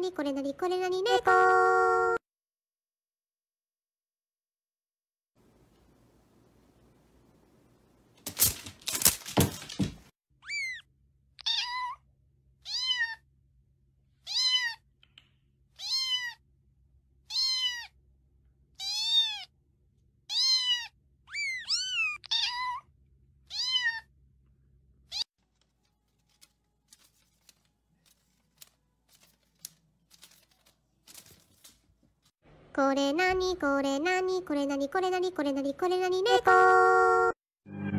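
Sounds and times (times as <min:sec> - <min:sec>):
cat meowing: 0:10.4 - 0:10.8, 0:11.4 - 0:12.0, 0:12.6 - 0:13.2, 0:14.2 - 0:14.8, 0:15.8 - 0:16.4, 0:17.3 - 0:18.0, 0:18.8 - 0:19.5, 0:20.3 - 0:24.1.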